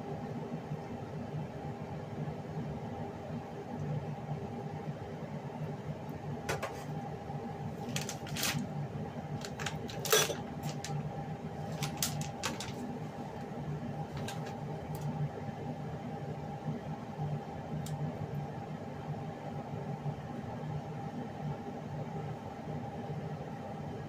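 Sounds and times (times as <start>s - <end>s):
steady low hum: 0.0s - 24.0s
utensils clinking and knocking: 9.4s - 10.9s.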